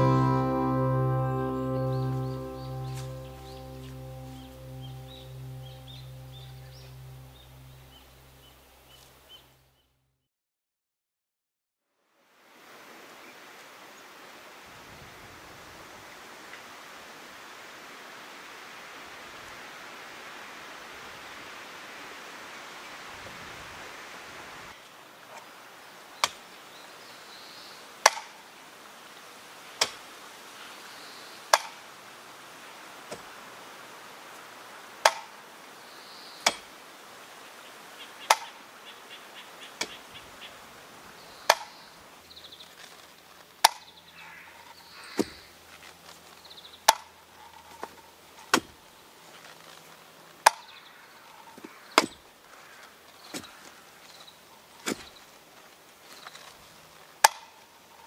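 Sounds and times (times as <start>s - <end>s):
faint birdsong: 0.0s - 10.0s, 35.7s - 36.7s, 37.4s - 48.2s, 50.4s - 55.4s.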